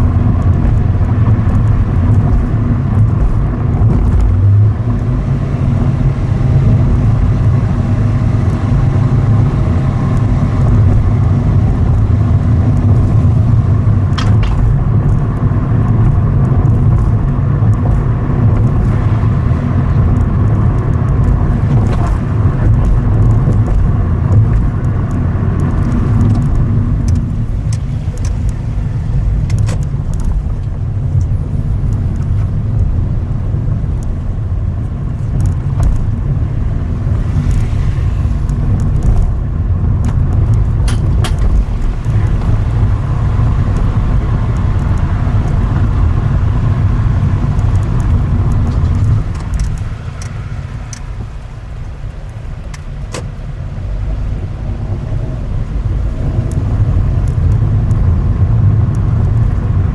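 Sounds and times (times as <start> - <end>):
car engine and tyres rumbling: 0.0 - 59.9
light ticks: 19.9 - 28.7, 34.8 - 36.2, 47.4 - 53.3, 56.3 - 58.2.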